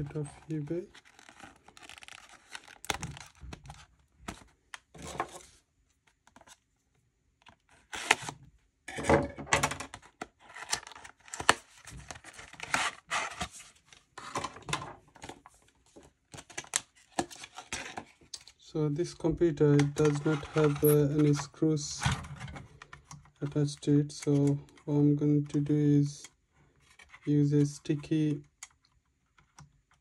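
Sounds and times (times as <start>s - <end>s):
plastic packaging rustling: 0.0s - 5.5s, 9.9s - 15.5s
cardboard box cut and torn: 7.8s - 8.4s.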